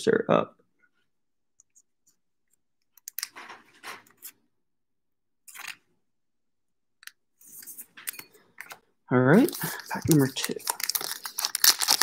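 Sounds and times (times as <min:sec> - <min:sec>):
soft plastic crinkling: 0:09.3 - 0:12.0.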